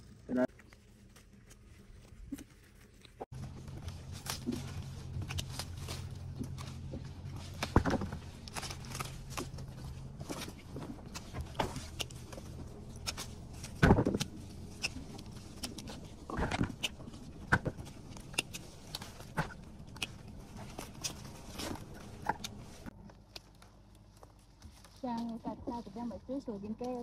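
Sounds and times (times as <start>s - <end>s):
vines rustling: 0.0s - 27.0s
picking shears snipping: 3.4s - 22.6s.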